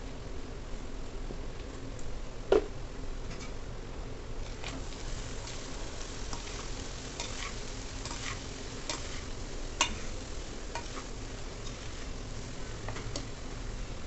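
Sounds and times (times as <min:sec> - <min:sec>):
light sizzle: 0:04.4 - 0:14.0
metal spoon scraping a pan: 0:06.3 - 0:13.4.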